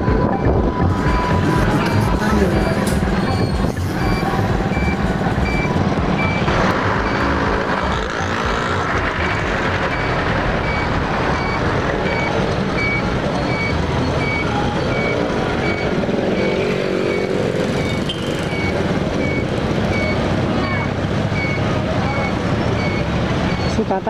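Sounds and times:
vehicles passing close by: 0:00.0 - 0:24.0
short high electronic beep: 0:00.3 - 0:07.3.

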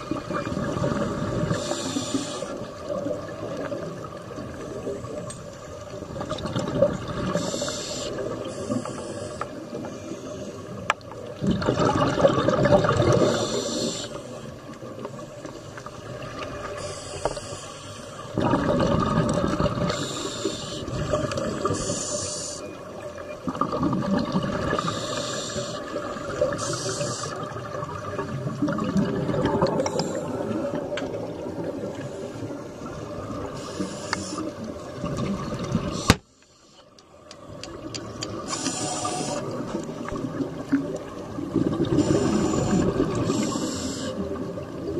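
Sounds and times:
regulator hissing inhale: 0:01.5 - 0:02.6, 0:07.4 - 0:10.7, 0:13.2 - 0:14.5, 0:16.8 - 0:18.2, 0:19.9 - 0:21.0, 0:21.6 - 0:22.6, 0:24.8 - 0:26.0, 0:26.6 - 0:27.4, 0:33.6 - 0:34.5, 0:38.4 - 0:39.5, 0:42.0 - 0:44.2.

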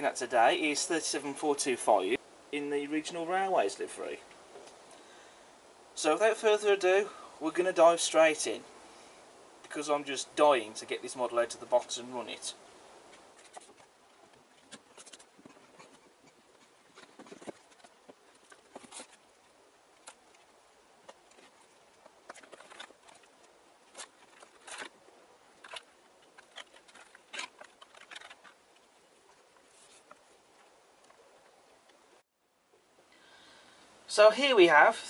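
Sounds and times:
faint clicks taps and crinkles: 0:04.2 - 0:05.1, 0:11.4 - 0:32.8
plastic bag rustling: 0:13.0 - 0:30.7.

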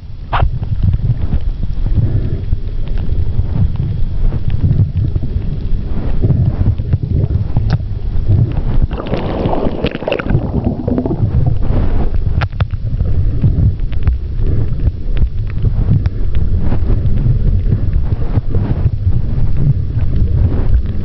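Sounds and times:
underwater rumble of moving water: 0:00.0 - 0:21.0
sharp underwater clicks: 0:00.3 - 0:21.0
rush of water: 0:08.6 - 0:12.3.

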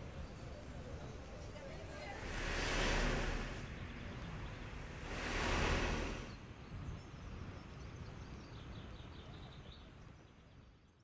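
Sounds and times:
street background noise: 0:00.0 - 0:11.0
car passing by: 0:01.4 - 0:06.6.

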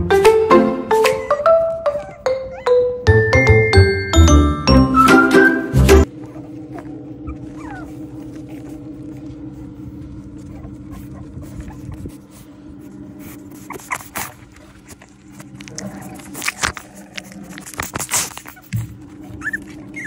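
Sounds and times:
puppies whimpering and squeaking: 0:01.0 - 0:03.6, 0:05.0 - 0:20.0
scuffling and clicking noises: 0:06.0 - 0:20.0
steady low hum: 0:06.0 - 0:20.0.

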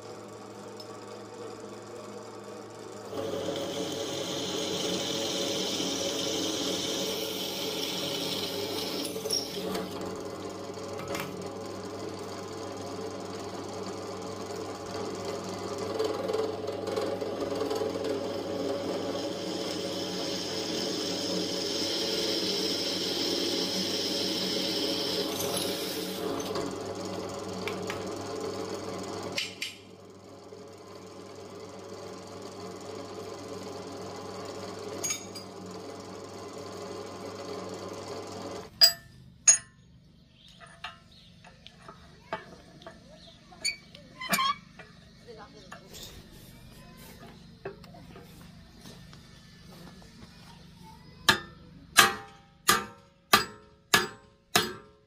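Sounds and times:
metalworking machine running: 0:00.0 - 0:39.7.

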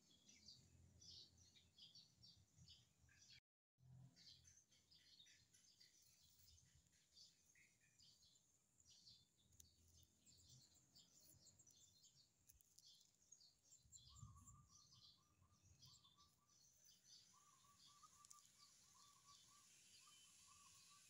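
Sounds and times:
faint bird chirps: 0:04.0 - 0:21.0
low rattling bird trill: 0:17.2 - 0:21.0.

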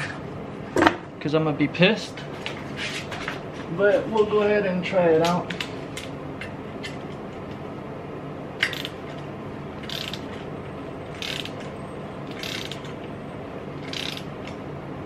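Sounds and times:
hand ratchet clicking: 0:08.6 - 0:09.0, 0:09.8 - 0:10.4, 0:11.1 - 0:11.7, 0:12.3 - 0:13.0, 0:13.8 - 0:14.3.

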